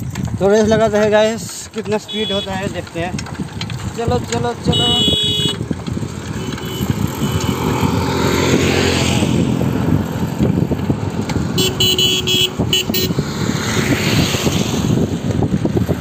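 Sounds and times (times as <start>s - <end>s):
motorcycle engine running: 0.0s - 16.0s
wind buffeting microphone: 0.0s - 16.0s
horn short beeps: 2.1s - 2.5s, 4.7s - 5.6s, 11.6s - 13.1s.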